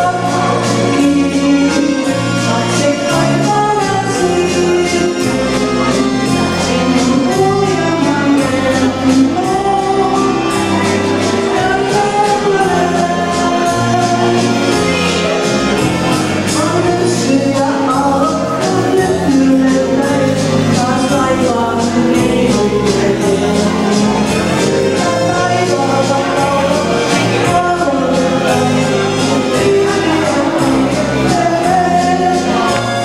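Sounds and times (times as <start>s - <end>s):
karaoke backing track: 0.0s - 33.0s
woman singing into microphone: 0.0s - 33.0s.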